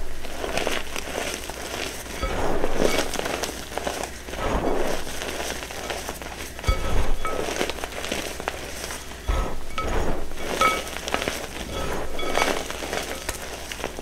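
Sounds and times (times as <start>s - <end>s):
chalk crunching and crumbling: 0.0s - 14.0s
squeaks of compressed chalk powder: 0.2s - 14.0s
dull thuds: 6.6s - 7.6s, 8.8s - 12.8s.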